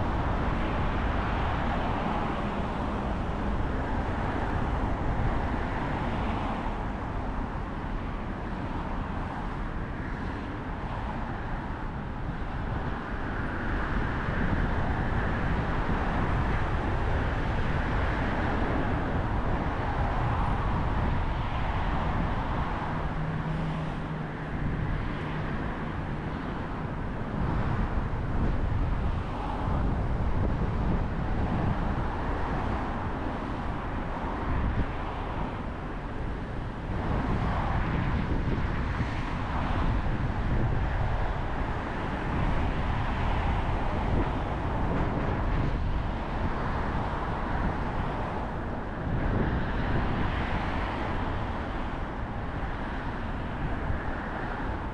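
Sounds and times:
car tyres and traffic rumble: 0:00.0 - 0:54.9.

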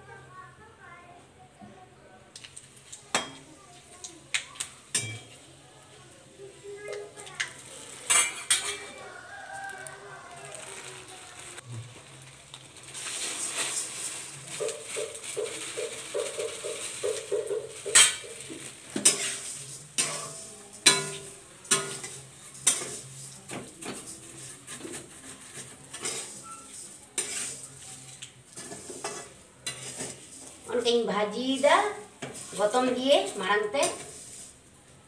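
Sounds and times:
food sizzling: 0:02.3 - 0:34.7
metal spatula scraping a pan: 0:07.2 - 0:09.2, 0:13.0 - 0:34.6.

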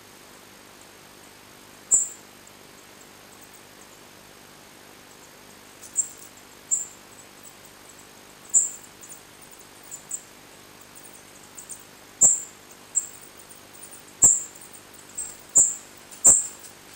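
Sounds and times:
fledgling birds peeping: 0:01.9 - 0:02.2, 0:08.5 - 0:09.2, 0:11.0 - 0:13.5, 0:14.1 - 0:16.9.

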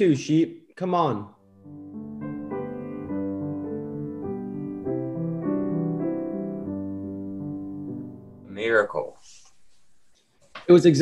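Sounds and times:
slow gentle piano music: 0:01.4 - 0:08.9.

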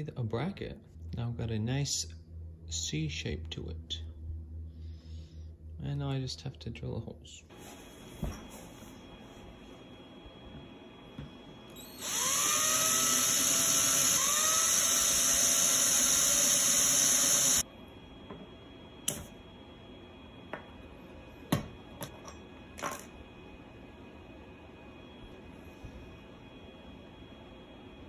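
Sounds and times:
cordless drill whining: 0:11.8 - 0:17.6.

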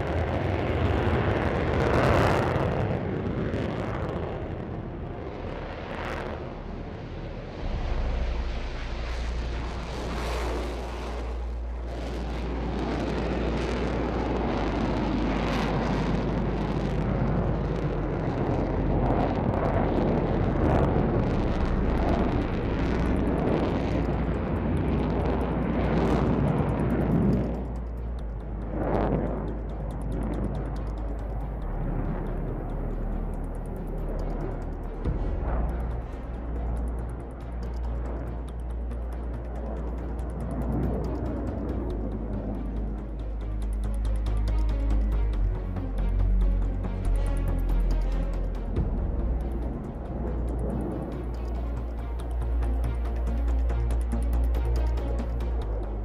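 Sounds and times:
jet engine afterburner roar: 0:00.0 - 0:27.7.

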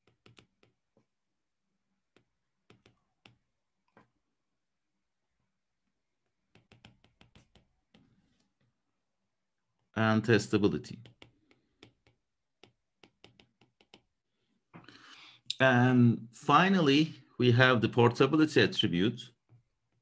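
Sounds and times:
stylus tapping on tablet screen: 0:00.0 - 0:01.2, 0:02.0 - 0:04.2, 0:06.2 - 0:08.7, 0:10.8 - 0:14.8.

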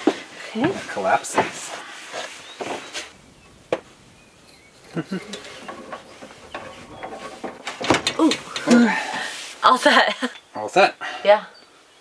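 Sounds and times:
clicks and knocks of fittings: 0:04.5 - 0:09.0.

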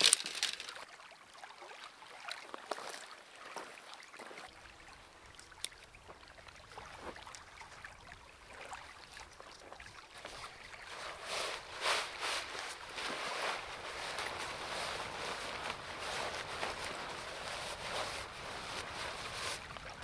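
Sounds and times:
light clicks and rustles: 0:00.0 - 0:00.8.

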